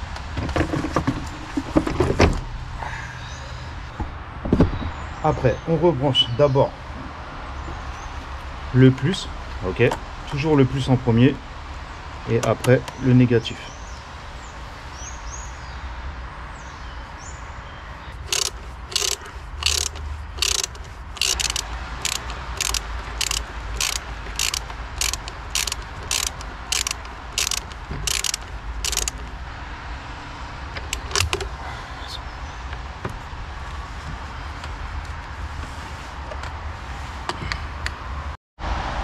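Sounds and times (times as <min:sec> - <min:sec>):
ratchet wrench clicking: 0:18.3 - 0:29.3, 0:30.9 - 0:31.5.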